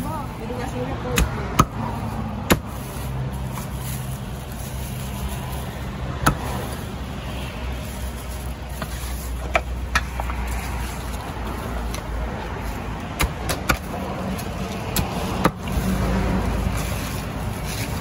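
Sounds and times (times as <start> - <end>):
road traffic rumble: 0.0 - 18.0
cleaver chopping on wooden block: 1.1 - 1.8.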